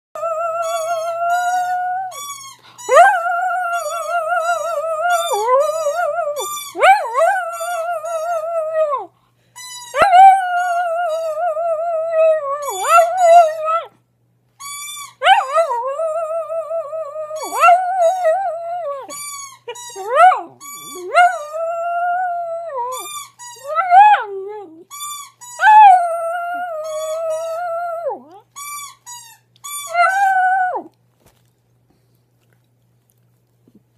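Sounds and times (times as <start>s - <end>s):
small dog howling: 2.9s - 9.1s, 10.0s - 13.9s, 15.2s - 19.2s, 19.9s - 24.9s, 25.6s - 28.4s, 29.9s - 30.9s.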